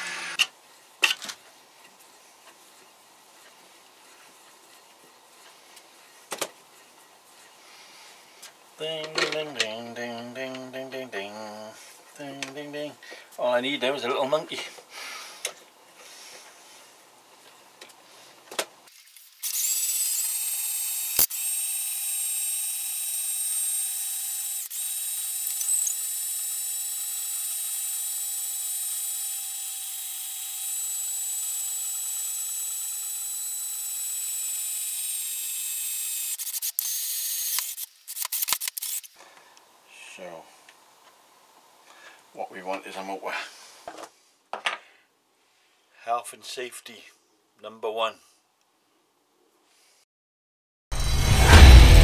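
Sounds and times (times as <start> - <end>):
cordless drill running: 0.0 - 0.4, 19.4 - 37.8.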